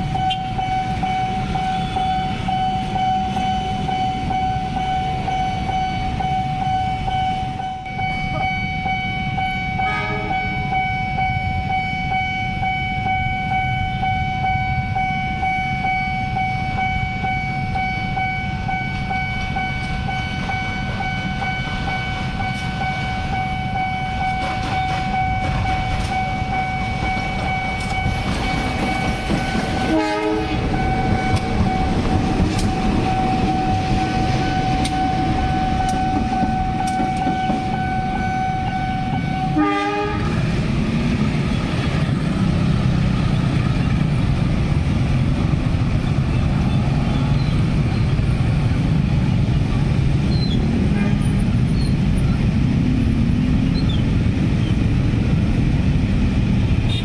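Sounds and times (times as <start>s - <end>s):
motor traffic rumble: 0.0s - 6.6s, 16.2s - 57.0s
steady high ringing tone: 0.0s - 39.6s
diesel locomotive rumbling: 0.0s - 57.0s
train wheels on rails: 17.6s - 57.0s.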